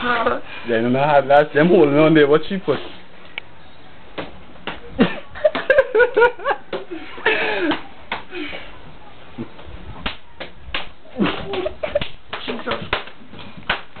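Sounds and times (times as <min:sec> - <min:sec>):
slaps and knocks: 0:04.2 - 0:04.8, 0:10.0 - 0:14.0
person laughing: 0:05.0 - 0:07.8, 0:11.2 - 0:12.1.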